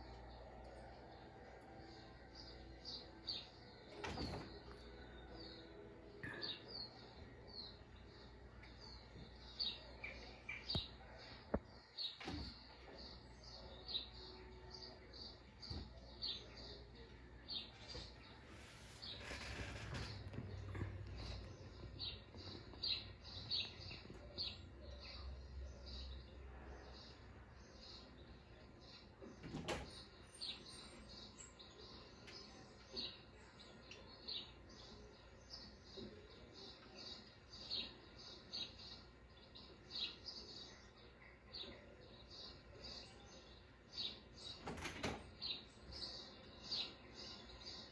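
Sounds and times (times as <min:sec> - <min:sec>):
faint small birds chirping: 0:00.0 - 0:47.9.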